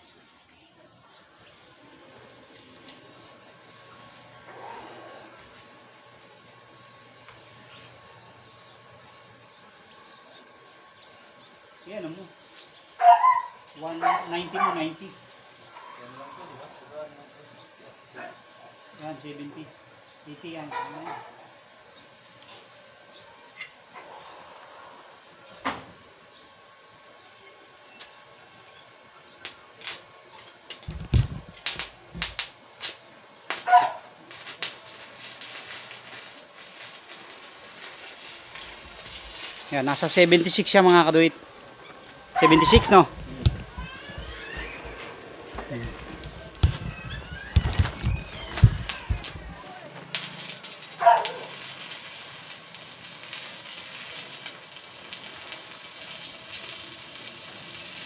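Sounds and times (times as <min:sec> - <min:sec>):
welding arc crackling hiss: 0:00.0 - 0:58.0
welding rod striking arc cracks: 0:29.4 - 0:41.2, 0:46.0 - 0:58.0
thumps: 0:42.7 - 0:49.6.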